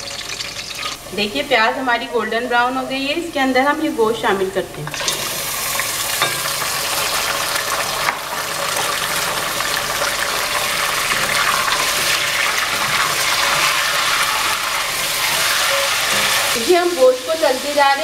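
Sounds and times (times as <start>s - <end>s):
meat sizzling in hot oil: 0.0s - 1.1s, 4.9s - 18.0s
wooden spoon stirring in pot: 11.3s - 16.8s.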